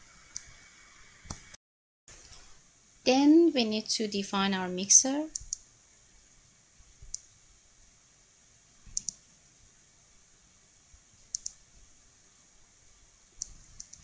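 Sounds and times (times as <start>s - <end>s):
computer mouse clicking: 5.3s - 5.6s, 7.0s - 7.3s, 8.9s - 9.2s, 11.3s - 11.6s, 13.4s - 14.0s.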